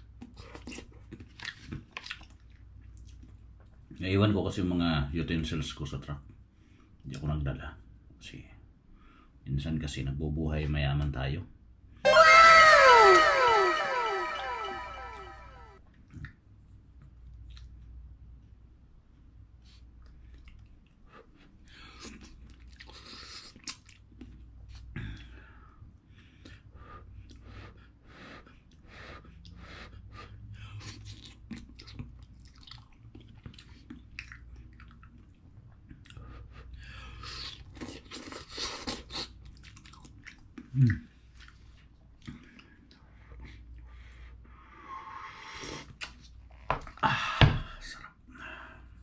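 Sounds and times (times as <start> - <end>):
short throaty sound: 12.1 - 15.7
wet mouth clicks: 22.0 - 24.4, 30.9 - 35.3, 45.4 - 46.3.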